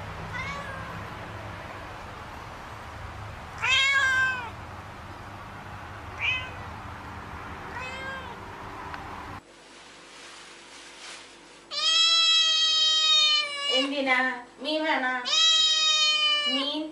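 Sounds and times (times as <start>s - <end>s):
cat meowing: 0.3s - 1.1s, 3.6s - 4.6s, 6.2s - 6.8s, 7.7s - 8.4s, 11.7s - 13.9s, 15.2s - 16.7s.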